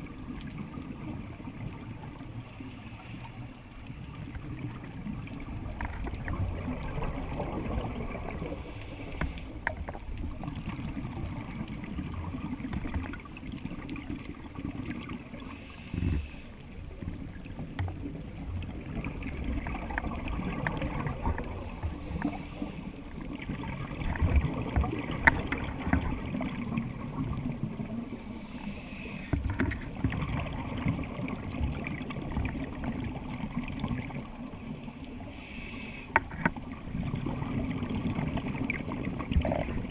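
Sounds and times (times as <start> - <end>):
underwater bubbles rumbling: 0.0 - 2.6, 3.5 - 39.9
scuba regulator inhalation hiss: 2.4 - 3.5, 8.5 - 9.6, 15.4 - 16.6, 21.6 - 23.0, 28.0 - 29.4, 35.3 - 36.2.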